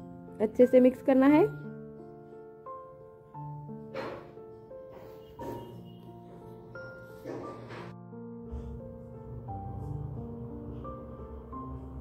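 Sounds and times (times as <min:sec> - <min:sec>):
slow instrumental music: 0:00.0 - 0:12.0.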